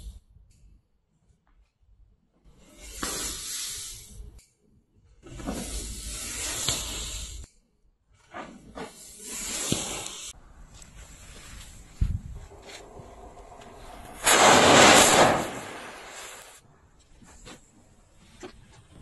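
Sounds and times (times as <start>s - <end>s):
hissing bursts of flame: 2.6s - 4.4s, 5.3s - 7.5s, 8.3s - 10.4s, 11.1s - 16.6s
sharp crackles: 9.4s - 16.6s.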